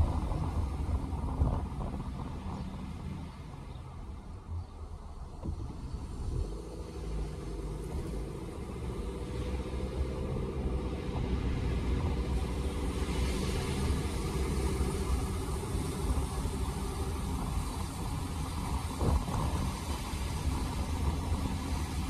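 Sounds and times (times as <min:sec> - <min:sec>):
car engine from inside cabin: 0:00.0 - 0:22.0
tyre hiss on wet road: 0:05.9 - 0:22.0.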